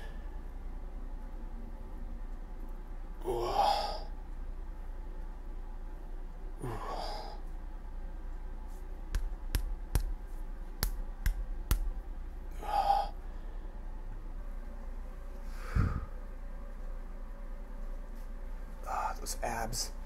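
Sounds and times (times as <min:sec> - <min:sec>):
man breathing out heavily: 0:03.4 - 0:04.1, 0:06.6 - 0:07.4, 0:12.5 - 0:13.8, 0:15.5 - 0:16.2
hand slapping bare chest: 0:09.1 - 0:12.0.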